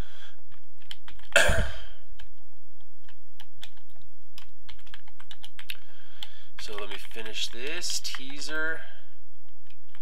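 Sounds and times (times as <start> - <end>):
computer keyboard typing: 0.5 - 1.3, 3.0 - 8.7
short throat noise: 1.3 - 2.0.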